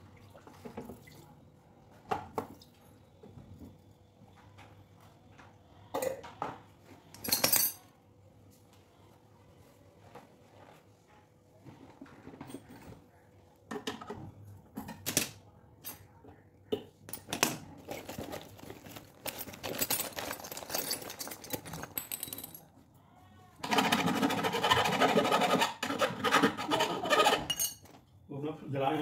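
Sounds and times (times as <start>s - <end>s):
metal tools clinking and knocking: 7.2s - 7.9s, 17.1s - 22.7s, 27.5s - 27.9s.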